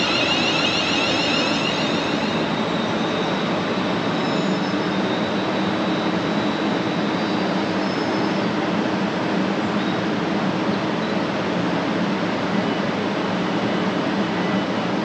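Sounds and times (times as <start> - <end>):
high wavering whine: 0.0 - 5.9
train wheels rushing on rails: 0.0 - 7.9.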